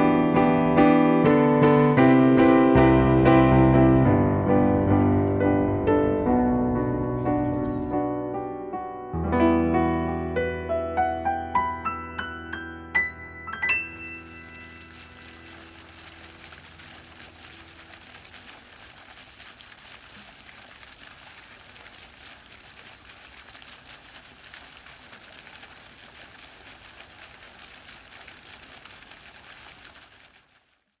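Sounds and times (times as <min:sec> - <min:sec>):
piano notes: 0:00.0 - 0:17.7
faint hiss: 0:13.8 - 0:30.5.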